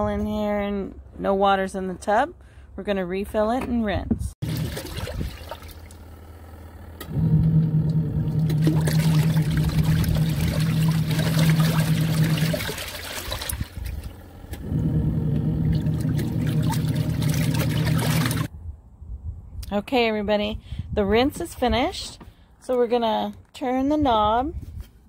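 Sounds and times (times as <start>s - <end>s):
water churning and sloshing: 4.4s - 6.2s, 7.0s - 18.5s
washing machine motor hum: 4.4s - 18.5s.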